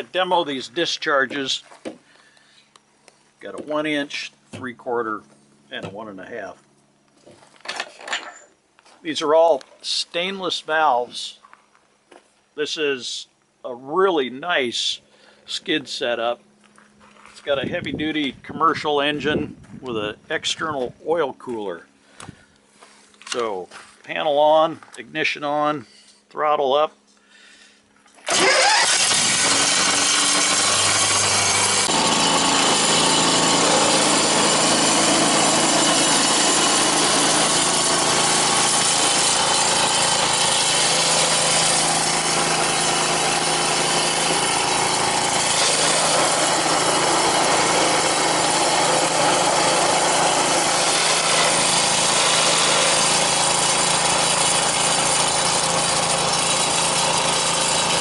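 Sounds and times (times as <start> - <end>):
water hissing through hose: 28.3 - 30.1
engine buzzing at high throttle: 28.3 - 58.0.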